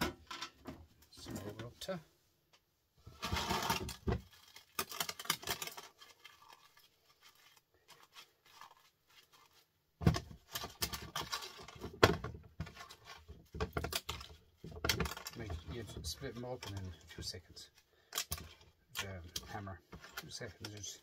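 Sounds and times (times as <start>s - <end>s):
copper scraps clinking into plastic tub: 3.2s - 4.0s.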